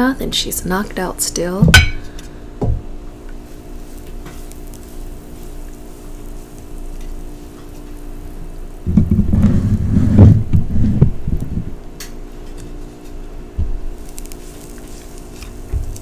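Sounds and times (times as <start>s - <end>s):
butter sizzling in a frying pan: 3.2s - 9.4s, 13.9s - 16.0s.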